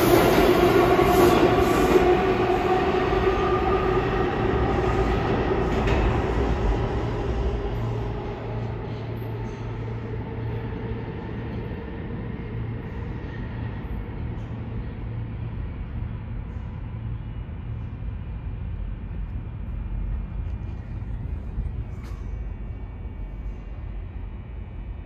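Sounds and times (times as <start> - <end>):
faint train whine: 0.0 - 25.0
subway train rumble and hum: 0.0 - 25.0.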